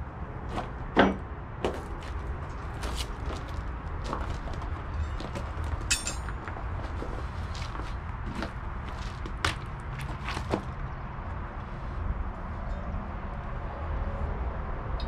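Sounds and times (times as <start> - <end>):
metal tools clinking and knocking: 5.0 - 6.4.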